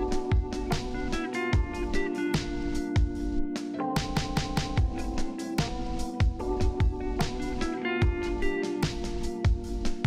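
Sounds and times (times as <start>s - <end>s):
background music with drum beat: 0.0s - 10.0s.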